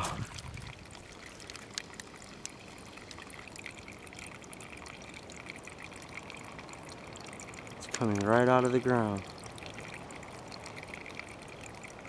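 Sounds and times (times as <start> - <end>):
water trickling: 0.0 - 12.0
light ticks: 8.1 - 8.4.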